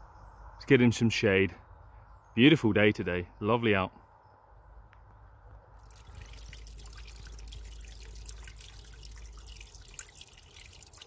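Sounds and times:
water trickling and dripping: 0:05.8 - 0:11.0.

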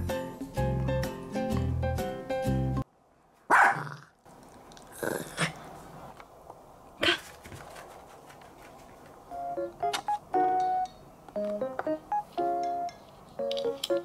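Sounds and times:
small dog barking: 0:03.5 - 0:04.0.

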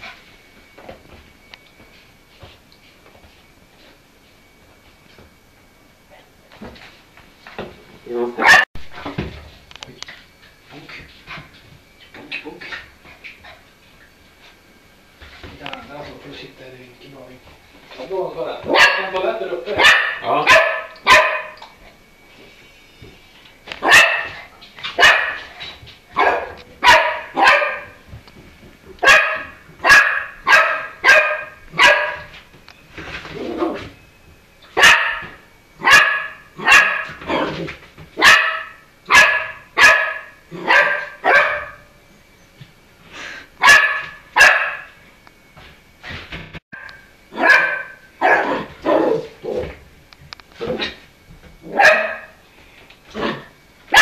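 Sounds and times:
puppy barking: 0:08.4 - 0:08.7, 0:18.7 - 0:19.2, 0:19.8 - 0:21.7, 0:23.8 - 0:24.4, 0:25.0 - 0:25.5, 0:26.2 - 0:28.0, 0:29.0 - 0:32.3, 0:34.8 - 0:37.5, 0:38.2 - 0:41.9, 0:43.6 - 0:45.0, 0:46.8 - 0:49.4, 0:51.7 - 0:52.4.

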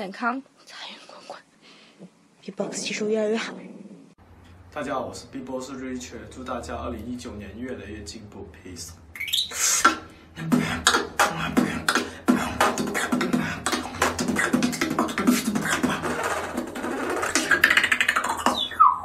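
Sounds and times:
person beatboxing: 0:09.3 - 0:18.8.

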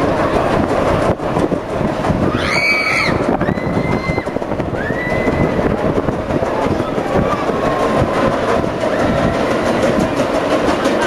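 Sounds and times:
ride rumbling: 0:00.0 - 0:11.0
riders screaming: 0:02.2 - 0:05.8.

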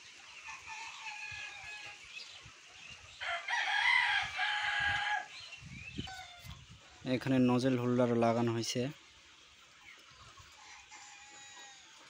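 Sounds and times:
rooster crowing: 0:03.2 - 0:05.3, 0:10.6 - 0:12.0.

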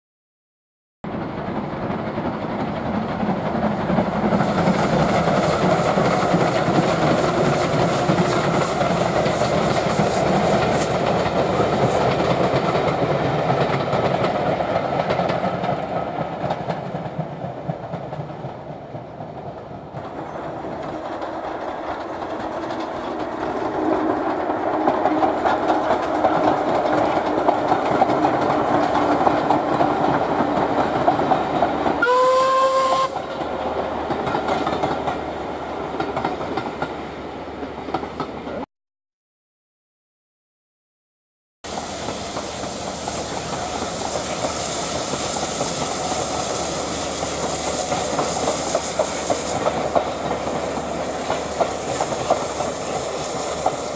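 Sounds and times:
steam train running past: 0:01.1 - 0:38.7, 0:41.6 - 0:53.9
steam whistle blast: 0:32.0 - 0:33.2.

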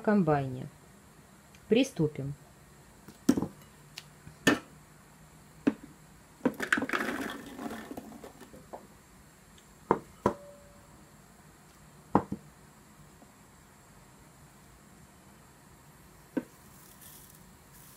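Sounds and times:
berries tumbling into plastic bowl: 0:06.4 - 0:08.7
spoon knocking on glass bowl: 0:09.9 - 0:10.6.

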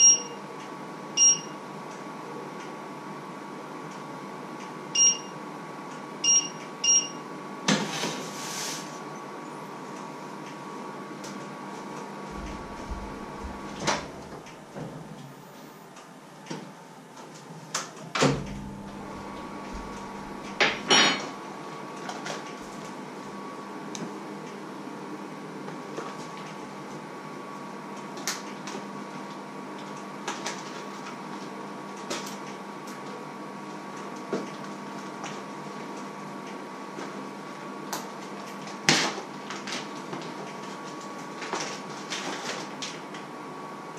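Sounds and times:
hob touch controls beeping: 0:00.0 - 0:00.4, 0:01.2 - 0:01.6, 0:05.0 - 0:05.3, 0:06.2 - 0:07.2
steady electrical hum: 0:00.0 - 0:43.9.

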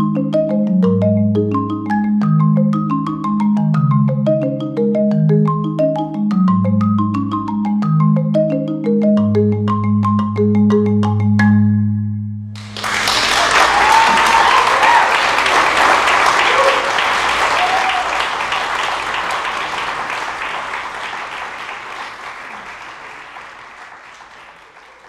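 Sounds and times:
audience applauding and cheering: 0:12.6 - 0:25.0
voices whooping: 0:13.4 - 0:15.6, 0:16.4 - 0:18.4.

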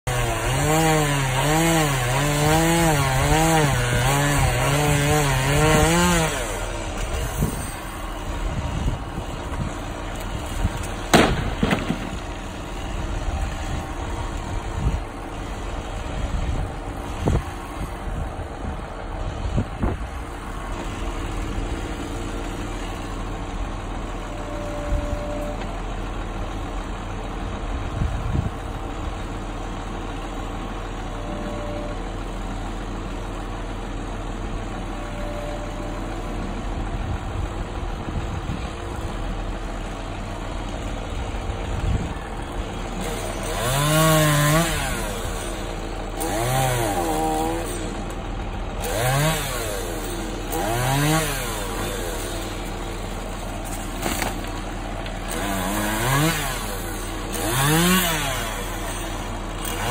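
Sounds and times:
chainsaw running at high speed: 0:00.0 - 0:18.2, 0:36.7 - 0:59.9
truck engine idling: 0:05.3 - 0:59.9
loud thump: 0:11.1 - 0:12.2.

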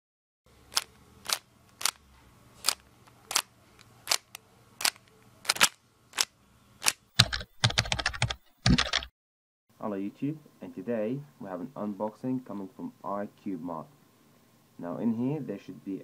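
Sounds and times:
puzzle cube layers clicking: 0:00.7 - 0:02.0, 0:02.6 - 0:03.5, 0:04.1 - 0:09.1.

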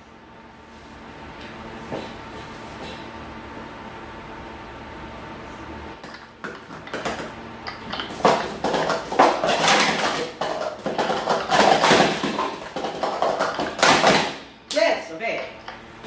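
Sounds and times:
plastic cups clattering: 0:06.0 - 0:14.4.

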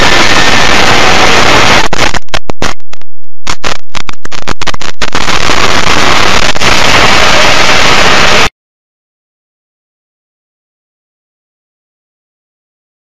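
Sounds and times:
wind and road rush: 0:00.0 - 0:08.5.

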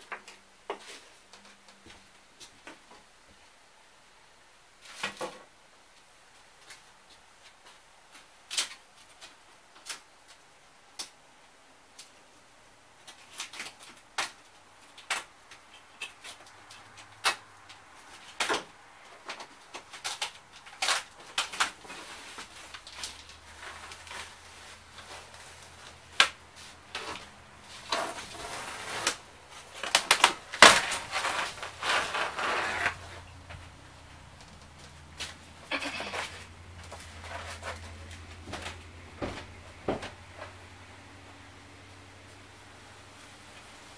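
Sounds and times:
rattling and crackling: 0:15.0 - 0:40.6.

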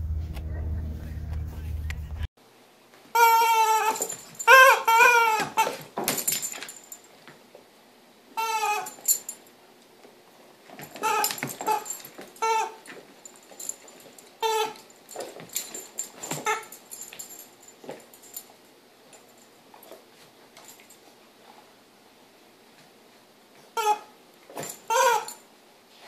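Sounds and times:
squeaky dog toy squeaks: 0:03.2 - 0:05.8, 0:08.4 - 0:09.2, 0:11.0 - 0:12.9, 0:14.4 - 0:14.8, 0:16.3 - 0:16.8, 0:23.8 - 0:24.1, 0:24.7 - 0:25.4.

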